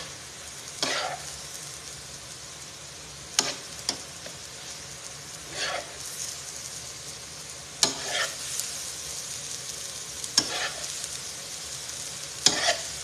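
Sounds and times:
sauce sizzling in a skillet: 0.0 - 13.0
metal spoon scraping a pan: 0.8 - 1.3, 3.4 - 4.1, 5.4 - 6.2, 7.8 - 8.6, 10.3 - 11.0, 12.4 - 13.0.

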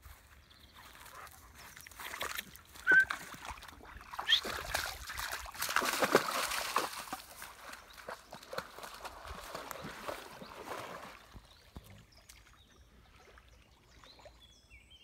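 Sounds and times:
dog splashing through water: 1.6 - 12.5
dog whining: 2.9 - 3.1.

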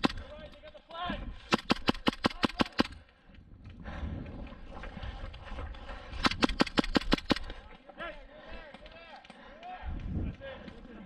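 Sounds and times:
airsoft gun rapid shots: 0.0 - 0.3, 1.5 - 3.0, 6.2 - 7.6.

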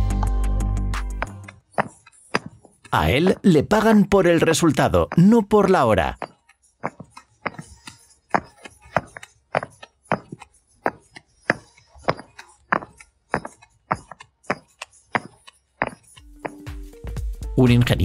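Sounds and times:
brick pavers clacking together: 1.1 - 16.8.

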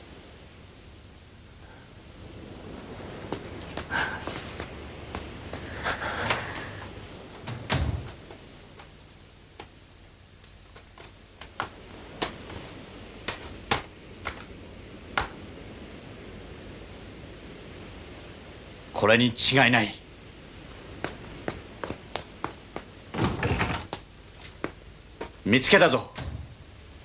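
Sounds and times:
steady hiss: 0.0 - 27.0
heavy thump: 7.4 - 8.4.

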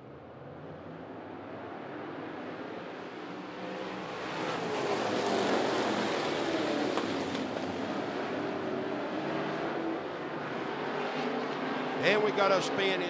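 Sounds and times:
race car engines passing: 0.1 - 13.0.

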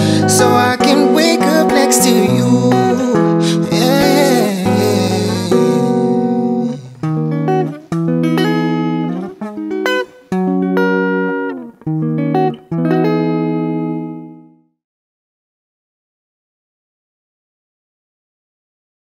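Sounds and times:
electric guitar chords ringing: 0.0 - 14.6.

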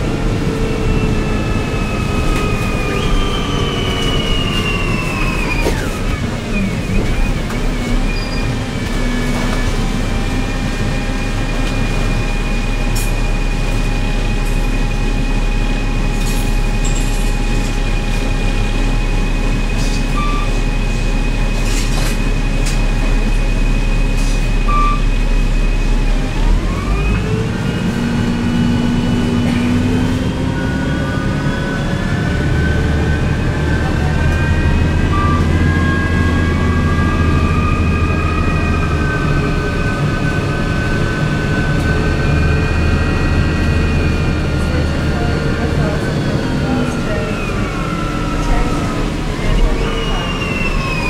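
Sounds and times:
bus engine rumble: 0.0 - 51.0
bus engine whine: 0.0 - 51.0.

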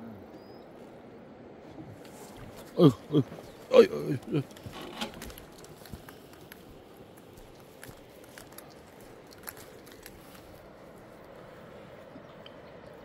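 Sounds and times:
footsteps crunching on dirt: 2.1 - 10.7.

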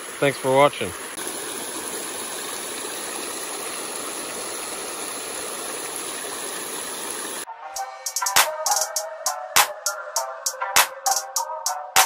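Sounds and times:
creek water rushing over rocks: 0.0 - 7.5.

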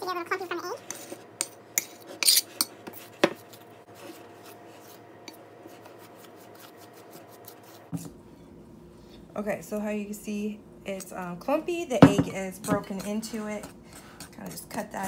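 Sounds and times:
fork scraping glass bowl: 0.8 - 7.8.

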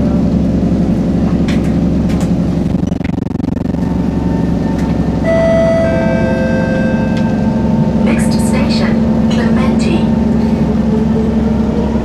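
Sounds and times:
train equipment hum: 0.0 - 12.0
traction motor whine: 2.6 - 9.3.

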